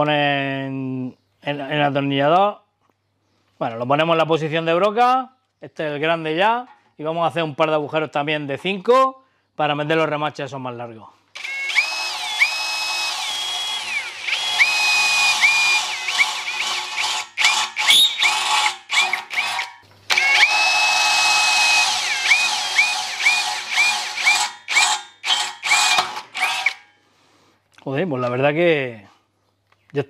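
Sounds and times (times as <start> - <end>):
drill trigger blips: 11.4 - 26.9
drill whining through steel: 11.4 - 27.0.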